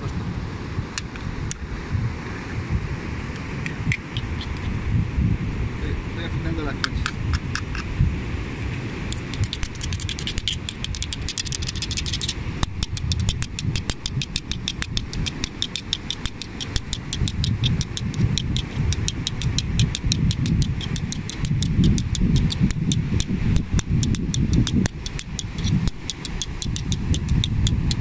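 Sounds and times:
wind rumbling on microphone: 0.0s - 28.0s
seashell rasping clicks: 1.0s - 1.6s, 3.4s - 4.7s, 6.8s - 7.9s, 9.1s - 28.0s.

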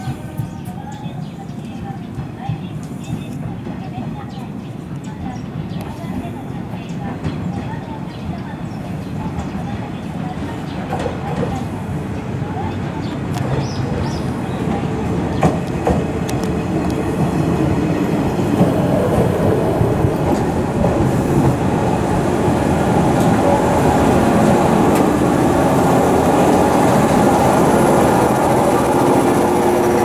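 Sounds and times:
electric train running on track: 0.0s - 30.0s
steady humming tones: 20.5s - 30.0s.

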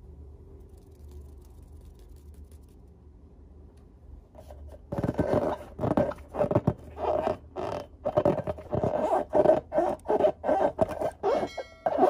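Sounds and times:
balloon rubber squeaking: 4.4s - 12.0s.

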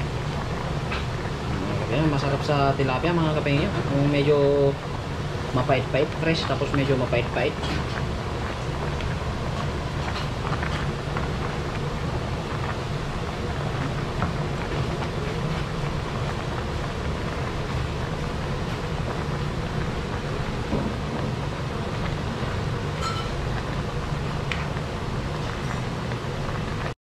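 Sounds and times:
soup boiling hard: 0.0s - 26.9s
ladle clinking against pot: 23.0s - 23.4s.

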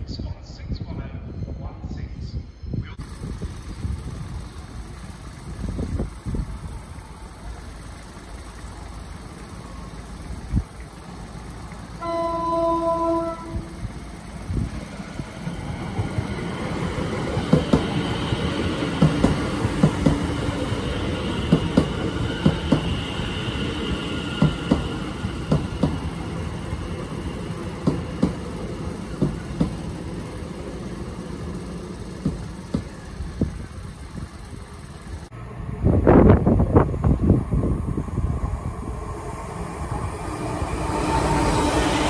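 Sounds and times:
train rumble: 0.0s - 42.0s
train wheels clacking over rail joints: 17.1s - 23.0s, 24.3s - 26.2s, 27.5s - 30.2s, 31.5s - 35.2s.

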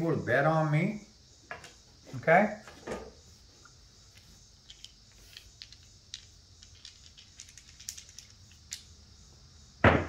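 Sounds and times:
dice clicking in a hand: 4.6s - 8.9s.

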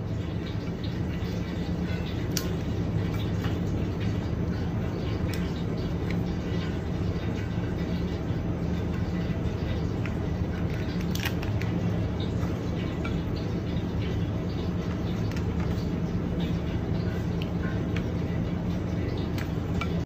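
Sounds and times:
steady low hum: 0.0s - 20.0s
lobster shells cracking: 9.8s - 12.3s.

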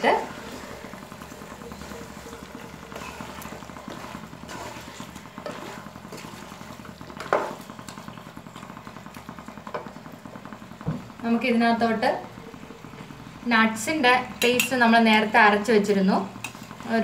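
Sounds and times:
spatula scraping pot: 0.0s - 10.0s, 16.4s - 17.0s
food sizzling: 0.0s - 17.0s
spatula knocking pot: 2.9s - 8.1s, 14.4s - 14.8s.

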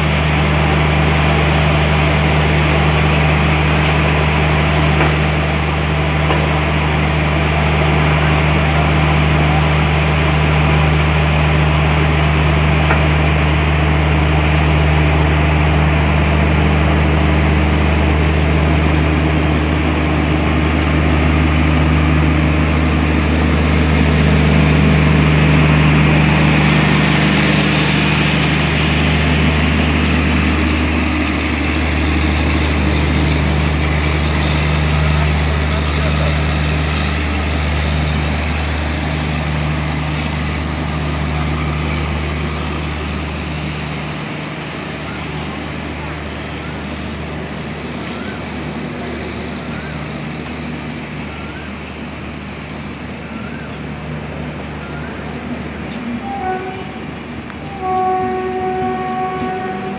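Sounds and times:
generator car whirring: 0.0s - 56.3s
locomotive hum and whirring: 0.0s - 59.9s.

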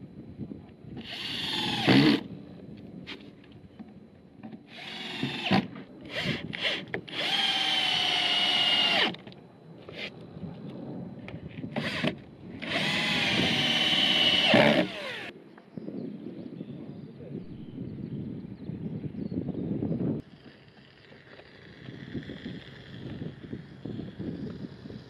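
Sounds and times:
cordless drill driving screws: 1.0s - 2.2s, 4.7s - 9.2s, 11.8s - 15.3s.

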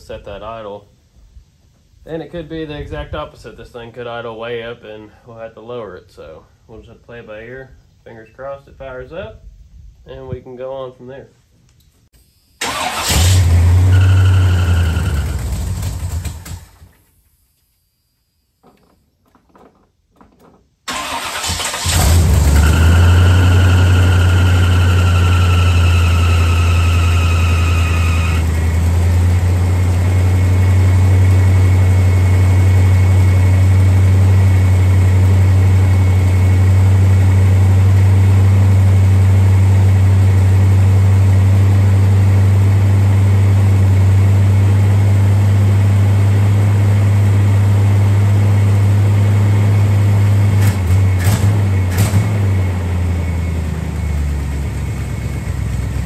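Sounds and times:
truck engine starting and idling: 12.6s - 16.9s, 20.8s - 56.0s.

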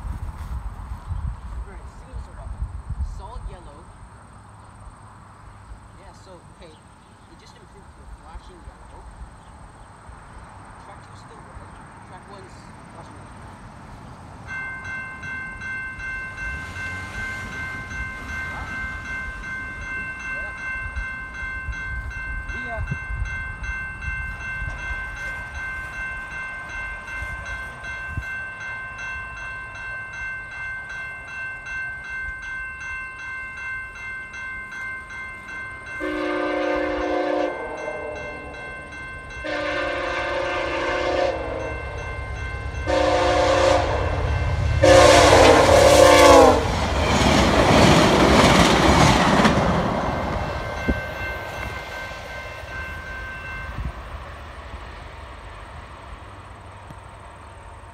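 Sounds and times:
train wheel and rail noise: 0.0s - 57.9s
level crossing bell ringing: 14.4s - 45.2s, 50.2s - 54.0s
train air horn: 36.0s - 38.6s, 39.4s - 42.0s, 42.8s - 46.8s.

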